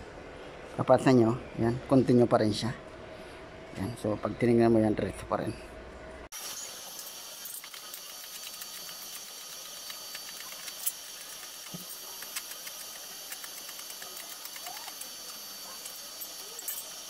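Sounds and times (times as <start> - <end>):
arc welding crackling hiss: 6.3 - 17.0.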